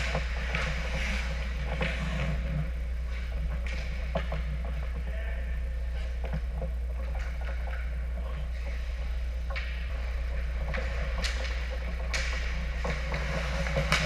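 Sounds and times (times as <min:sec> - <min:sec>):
steady low hum: 0:00.0 - 0:14.0
skate blades scraping on ice: 0:10.6 - 0:14.0.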